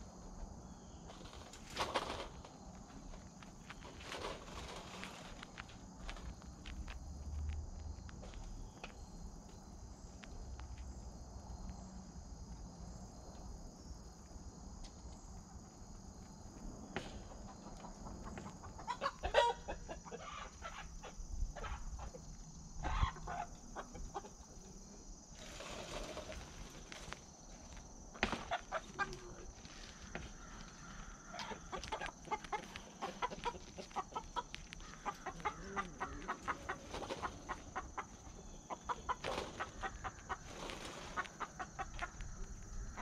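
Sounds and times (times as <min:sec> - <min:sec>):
hens clucking and squawking: 0:17.3 - 0:24.8, 0:28.4 - 0:43.0.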